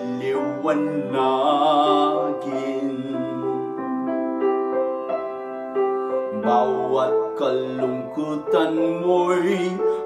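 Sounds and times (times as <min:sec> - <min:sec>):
man singing a hymn: 0:00.0 - 0:03.9, 0:06.3 - 0:10.0
keyboard accompaniment: 0:00.0 - 0:10.0.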